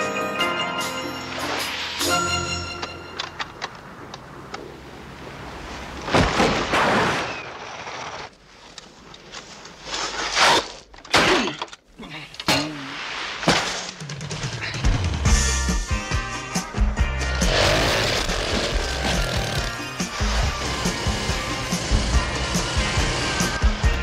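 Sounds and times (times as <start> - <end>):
music: 0.0 - 3.4, 14.0 - 24.0.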